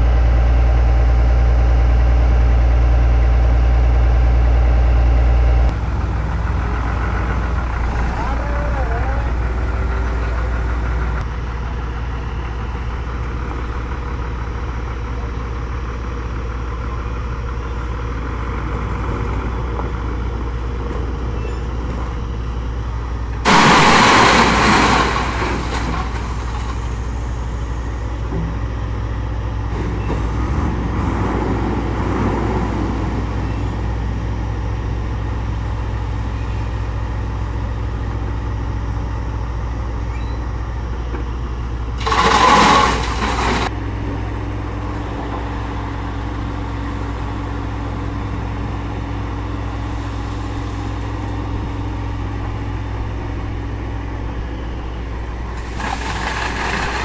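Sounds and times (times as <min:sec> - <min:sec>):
diesel engines running: 0:00.0 - 0:57.0
crushed stone pouring into steel bed: 0:23.5 - 0:26.8, 0:42.0 - 0:43.7, 0:55.6 - 0:57.0.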